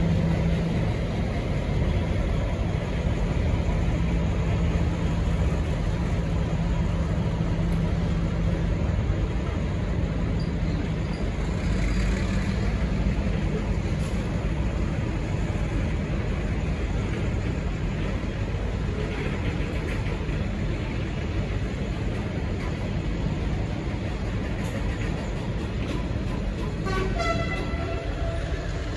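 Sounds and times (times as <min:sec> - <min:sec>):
diesel railcars rumbling: 0:00.0 - 0:28.9.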